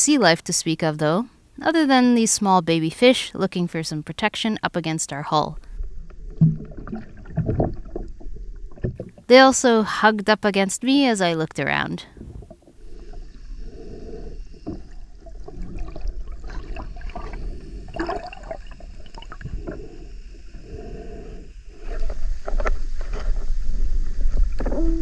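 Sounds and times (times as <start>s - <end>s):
underwater rumble of water: 5.5s - 9.3s, 12.1s - 25.0s.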